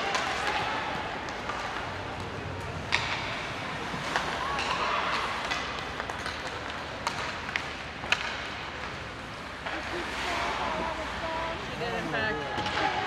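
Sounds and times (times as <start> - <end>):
hockey stick hitting puck: 0.0 - 9.0.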